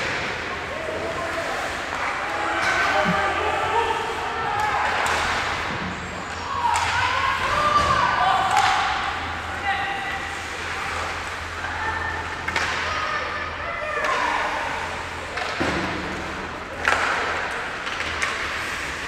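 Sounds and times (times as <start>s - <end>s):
players shouting: 0.0s - 16.0s
sticks and puck hitting boards: 4.6s - 9.3s, 12.3s - 13.2s, 14.0s - 19.0s
skates scraping ice: 14.0s - 19.0s.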